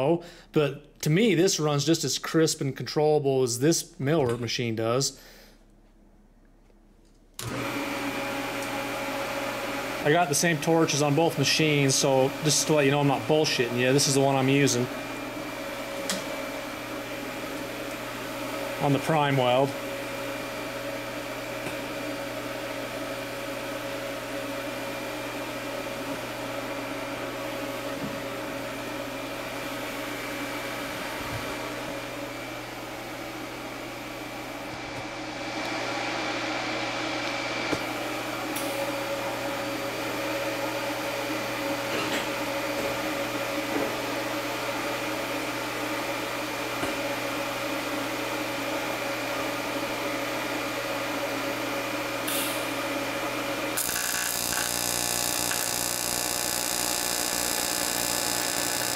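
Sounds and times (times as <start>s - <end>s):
welder and cooler humming: 7.4s - 58.9s
welding arc buzzing: 52.3s - 53.0s, 53.6s - 58.9s.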